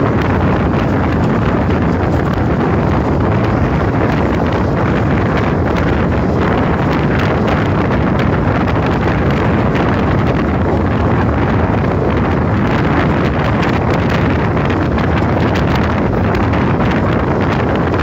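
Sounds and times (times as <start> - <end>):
train coach rumbling on rails: 0.0 - 18.0
wind buffeting microphone: 0.0 - 18.0.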